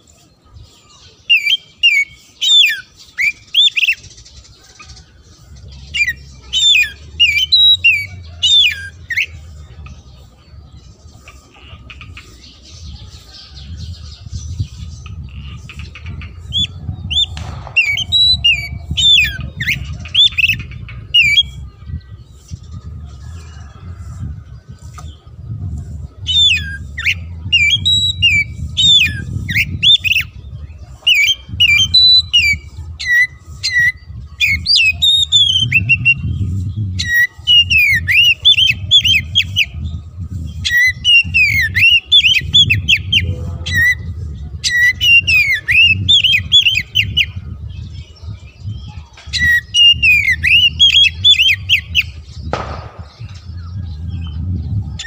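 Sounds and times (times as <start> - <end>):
bird singing whistled notes: 0.0 - 11.4, 12.0 - 55.0.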